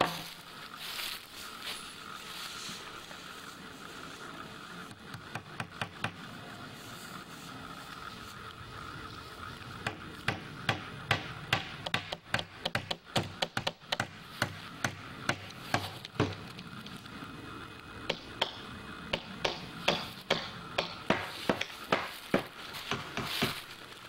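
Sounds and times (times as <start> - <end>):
footsteps crunching dry leaves: 0.0 - 4.4, 21.2 - 24.0.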